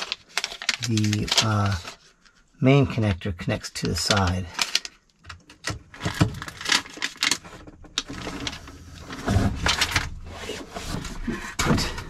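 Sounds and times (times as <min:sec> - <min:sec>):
hands rustling with wiring: 0:00.0 - 0:02.5.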